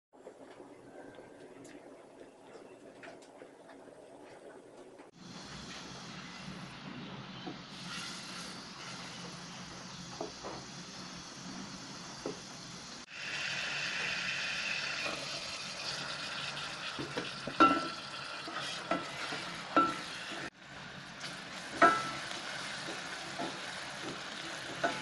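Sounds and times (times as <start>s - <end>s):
garlic sizzling in a pot: 7.7s - 25.0s.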